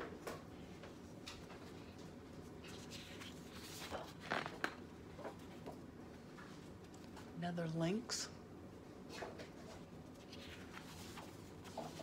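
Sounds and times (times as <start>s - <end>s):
paper page rustling: 2.6s - 4.6s, 9.6s - 12.0s.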